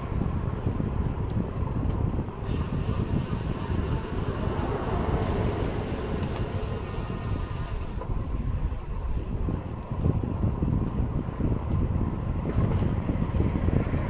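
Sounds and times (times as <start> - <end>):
wind buffeting microphone: 0.0 - 14.0
high-pitched hiss: 2.5 - 8.0.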